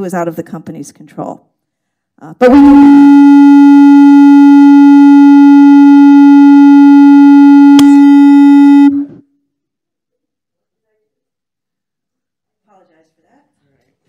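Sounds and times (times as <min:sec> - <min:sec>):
microphone feedback tone: 0:02.4 - 0:09.2.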